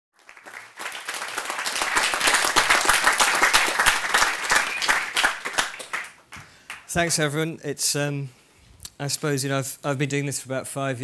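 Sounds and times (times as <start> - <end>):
audience applauding: 0.2 - 7.1.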